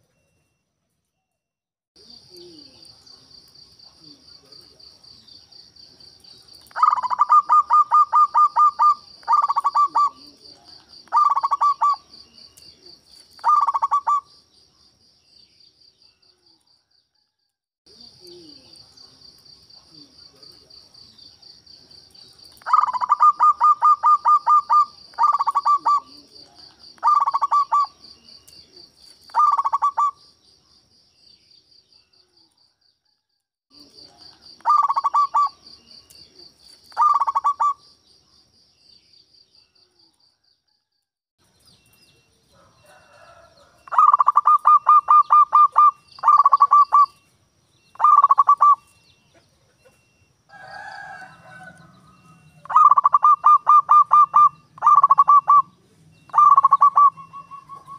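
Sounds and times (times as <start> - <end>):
dove cooing: 6.7 - 12.2, 12.9 - 14.3, 22.6 - 28.0, 29.3 - 30.2, 34.6 - 35.6, 36.9 - 37.8, 42.9 - 47.2, 48.0 - 57.9.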